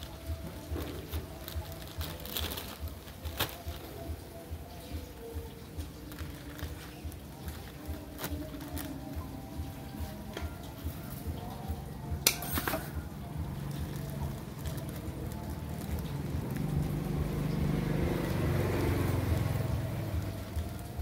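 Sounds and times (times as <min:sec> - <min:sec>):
plastic bag crinkling: 0:00.0 - 0:04.4, 0:05.5 - 0:10.2, 0:12.4 - 0:17.2, 0:19.3 - 0:21.0.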